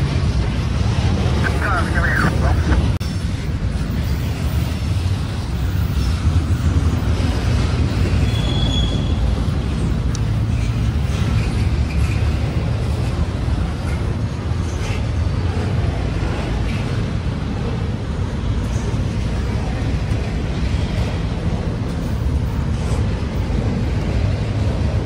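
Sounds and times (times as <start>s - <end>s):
railroad cars rumbling past: 0.0s - 25.0s
faint wheel squeals: 8.2s - 9.2s.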